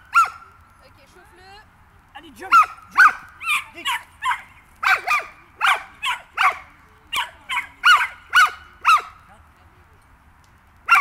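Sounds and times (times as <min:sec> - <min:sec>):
dog barking: 0:00.1 - 0:00.4, 0:02.5 - 0:09.2.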